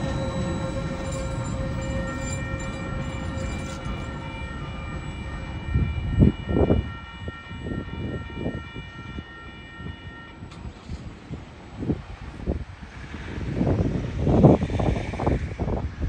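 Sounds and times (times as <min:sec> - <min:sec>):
level crossing alarm ringing: 0:00.0 - 0:11.0
freight train rumble: 0:00.0 - 0:16.0
wind buffeting microphone: 0:00.0 - 0:16.0.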